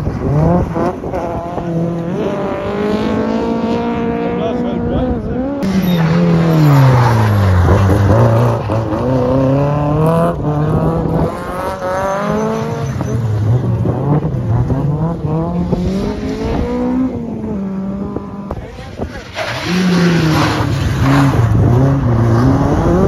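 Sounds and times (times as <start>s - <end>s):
rally car engines at full throttle: 0.0s - 23.0s.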